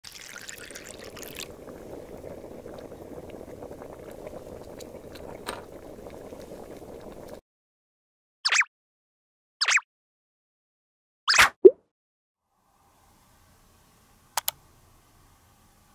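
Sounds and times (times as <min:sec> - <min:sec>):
pot simmering and bubbling: 0:00.0 - 0:07.4
water pouring into small pot: 0:00.0 - 0:07.4.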